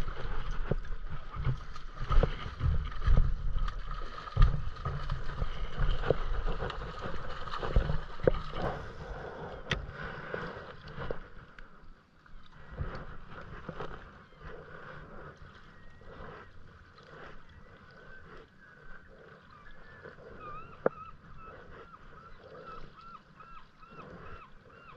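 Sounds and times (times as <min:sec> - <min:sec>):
fish splashing in water: 0:00.0 - 0:11.3.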